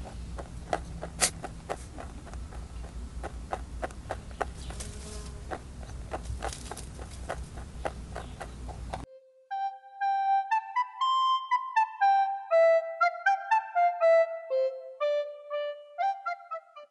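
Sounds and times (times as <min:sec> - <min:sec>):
low steady rumble: 0:00.0 - 0:04.6
rabbit chewing dry pellets: 0:00.0 - 0:09.0.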